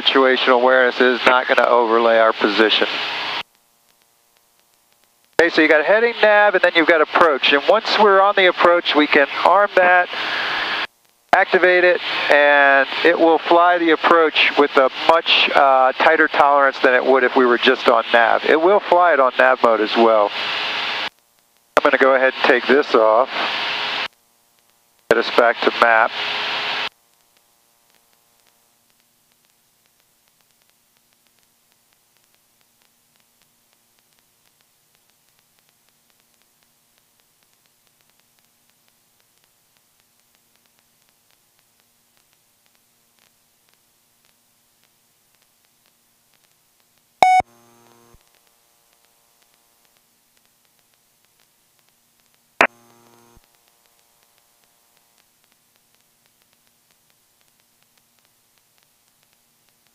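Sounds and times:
faint hiss and hum: 0.0s - 59.9s
small scattered clicks: 3.4s - 5.4s, 26.9s - 47.2s, 47.8s - 59.9s
low electronic buzzing tone: 47.2s - 50.0s, 52.6s - 55.2s.

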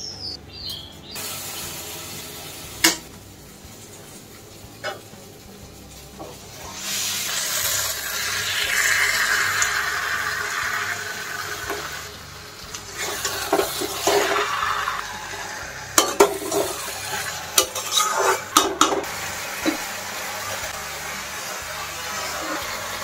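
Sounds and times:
chicken sizzling in hot oil: 1.1s - 23.0s
metal spatula scraping a pan: 12.9s - 19.0s.

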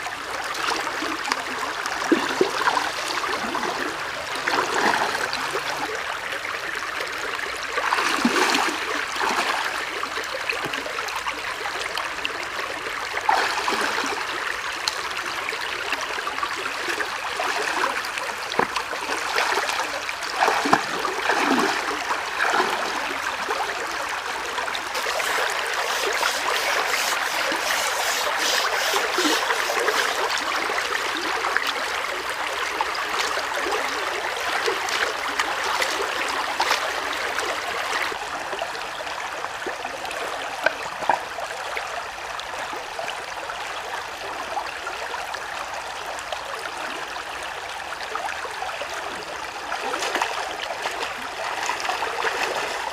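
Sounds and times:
stream running over rocks: 0.0s - 52.9s
water splashing: 1.9s - 5.9s, 7.8s - 10.9s, 13.3s - 14.3s, 17.0s - 31.3s.

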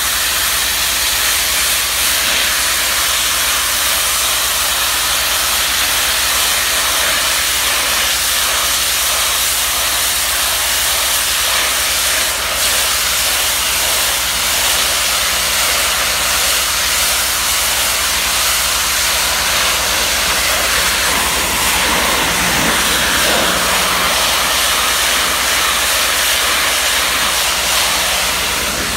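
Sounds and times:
pressure washer spray hissing: 0.0s - 28.9s.

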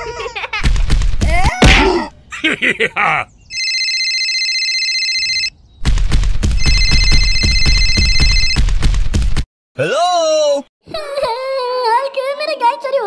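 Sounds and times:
mobile phone ringing: 3.5s - 5.5s, 6.6s - 8.6s.

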